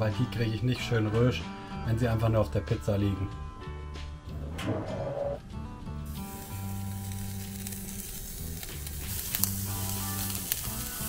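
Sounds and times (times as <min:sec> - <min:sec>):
background music: 0:00.0 - 0:11.0
food sizzling on a grill: 0:06.1 - 0:11.0
small ticks: 0:07.0 - 0:11.0.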